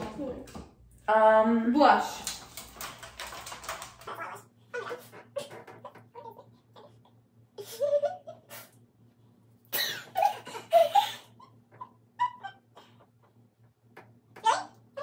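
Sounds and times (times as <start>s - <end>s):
women laughing: 7.6s - 8.7s, 9.9s - 13.0s.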